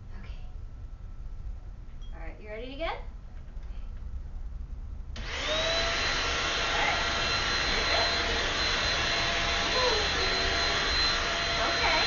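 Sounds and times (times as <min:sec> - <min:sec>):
vacuum cleaner motor whine: 0:05.2 - 0:12.0.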